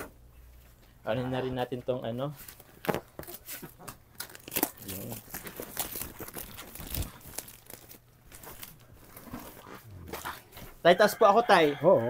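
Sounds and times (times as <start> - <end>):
plastic wrapping crinkling: 2.5 - 10.4.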